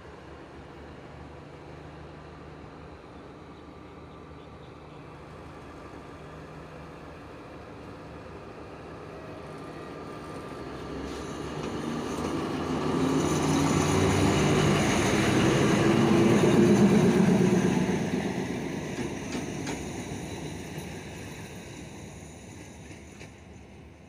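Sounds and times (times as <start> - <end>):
diesel locomotive engine hum: 0.0 - 24.0
train wheels clicking over rail joints: 18.6 - 21.0.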